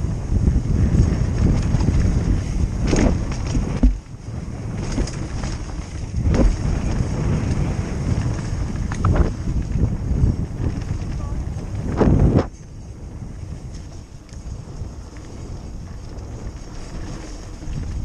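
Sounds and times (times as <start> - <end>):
wind buffeting camera: 0.0 - 18.0
tyre rumble on dirt: 0.7 - 12.6
bike knocks and clatters: 0.9 - 12.8.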